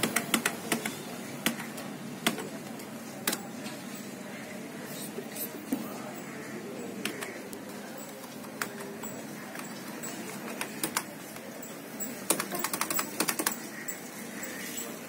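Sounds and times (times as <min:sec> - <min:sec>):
keyboard keystrokes: 0:00.0 - 0:02.6, 0:08.0 - 0:11.5, 0:12.2 - 0:13.7
steady background noise: 0:00.0 - 0:15.0.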